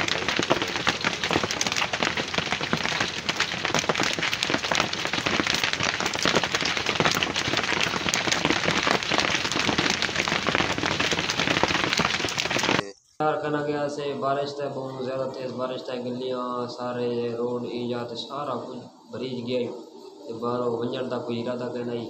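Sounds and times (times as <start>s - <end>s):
heavy rain on bare ground: 0.0s - 12.8s.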